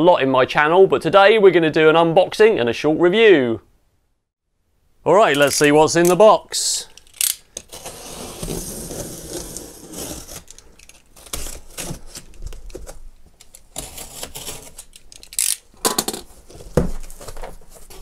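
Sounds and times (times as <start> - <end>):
knife slitting packing tape: 7.0 - 12.8, 13.4 - 15.7.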